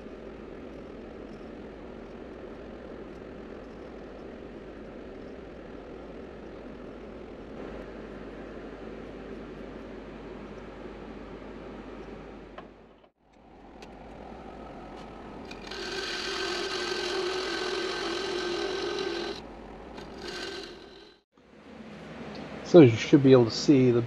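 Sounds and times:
wood lathe whine: 0:13.6 - 0:21.2
turning tool scraping wood: 0:15.4 - 0:21.2.

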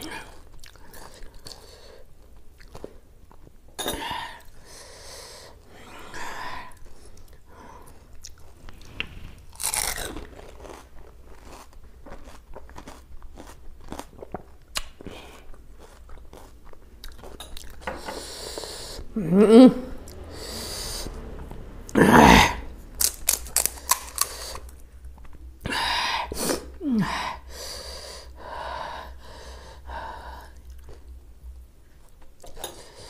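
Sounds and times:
crunching food bites: 0:09.6 - 0:15.0, 0:23.0 - 0:24.8
wet chewing: 0:09.6 - 0:17.8, 0:23.0 - 0:25.4.

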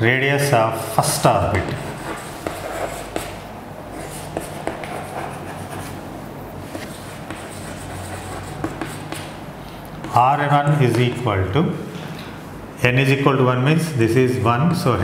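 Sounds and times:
low room hum: 0:00.0 - 0:15.0
chalk scratching on chalkboard: 0:01.6 - 0:06.0, 0:06.6 - 0:09.4.

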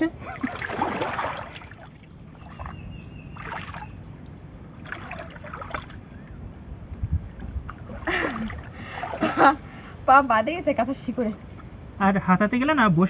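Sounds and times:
hands splashing in muddy water: 0:00.4 - 0:02.8, 0:03.4 - 0:03.9, 0:04.8 - 0:06.0.

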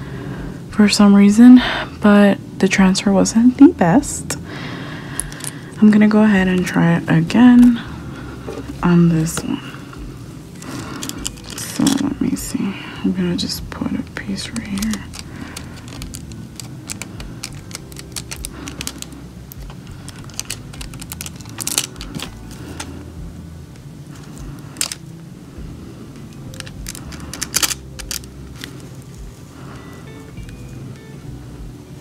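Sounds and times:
foil clicking and crinkling: 0:10.5 - 0:12.2, 0:14.1 - 0:23.0, 0:24.1 - 0:25.1, 0:26.3 - 0:30.0.

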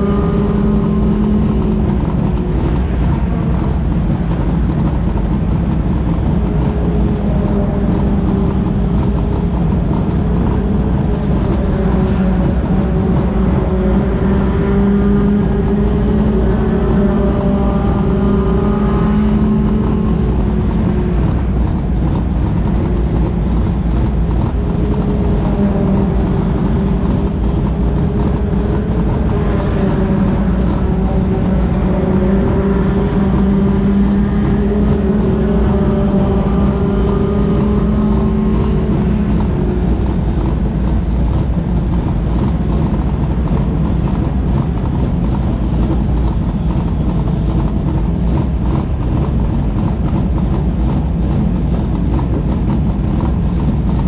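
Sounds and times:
race car engines idling: 0:00.0 - 0:54.0
wavering engine note: 0:00.0 - 0:54.0.

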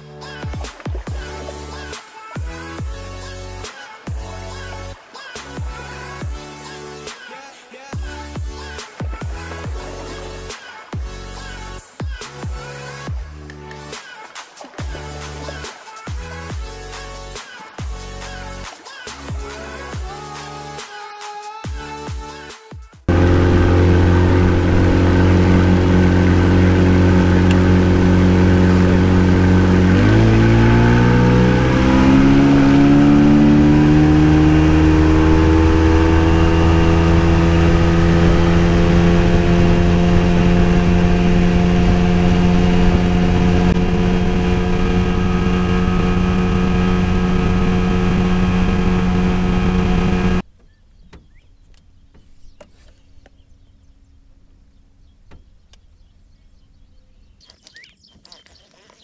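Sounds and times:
outboard motor running: 0:23.1 - 0:50.4.

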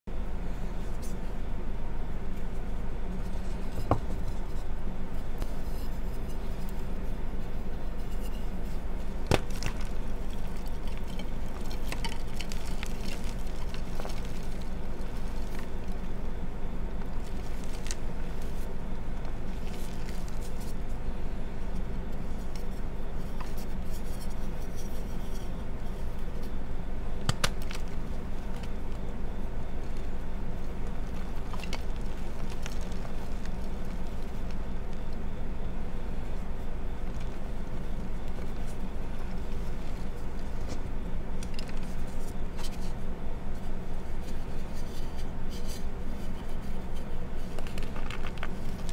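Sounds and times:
steady low hum: 0:00.0 - 0:48.9
chalk crunching: 0:03.2 - 0:26.6, 0:27.5 - 0:43.0
chalk blocks cracking: 0:09.0 - 0:16.2, 0:16.9 - 0:20.8, 0:29.8 - 0:35.3.

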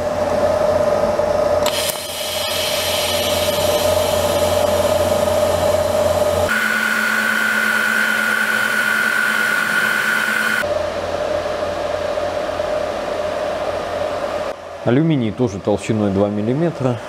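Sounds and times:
welding arc hissing and whining: 0:01.6 - 0:10.6.

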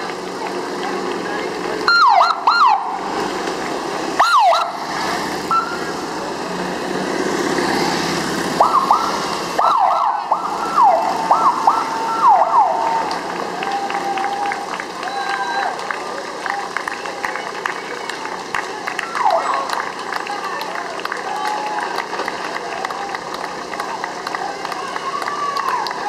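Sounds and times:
police siren whoops: 0:01.9 - 0:03.0, 0:04.2 - 0:04.8, 0:08.6 - 0:15.8, 0:19.0 - 0:19.8.

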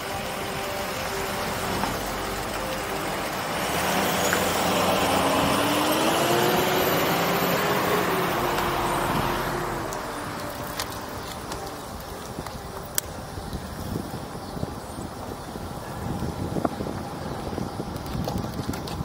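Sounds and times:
motor vehicle passing: 0:00.0 - 0:12.1
road and wind noise: 0:00.0 - 0:19.0.

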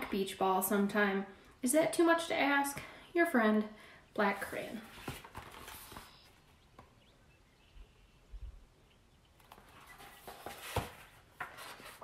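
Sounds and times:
soft book rustles: 0:04.3 - 0:06.5, 0:09.4 - 0:12.0.

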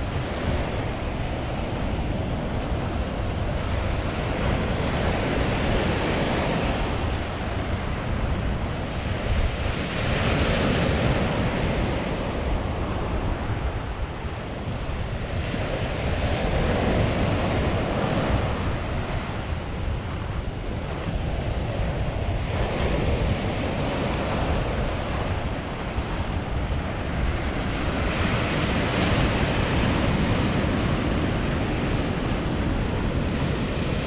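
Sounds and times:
sea waves breaking on pebbles: 0:00.0 - 0:34.0
wind rumble on microphone: 0:00.0 - 0:34.0.

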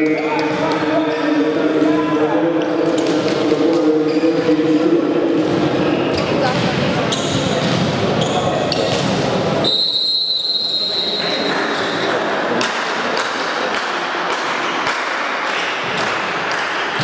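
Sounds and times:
crowd noise in hall: 0:00.0 - 0:17.0
referee's whistle blast: 0:09.6 - 0:12.0.

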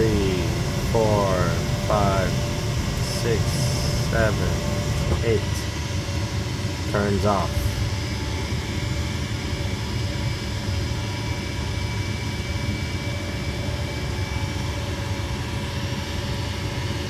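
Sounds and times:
furnace motor humming: 0:00.0 - 0:09.2.

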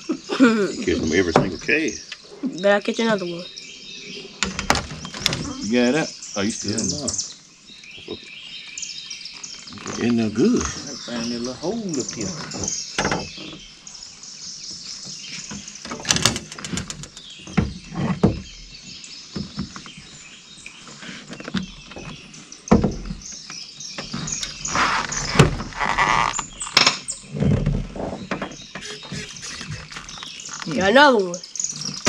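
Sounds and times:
birds chirping: 0:00.0 - 0:32.0
fishing gear knocking and rattling: 0:15.4 - 0:18.5, 0:24.0 - 0:28.6.

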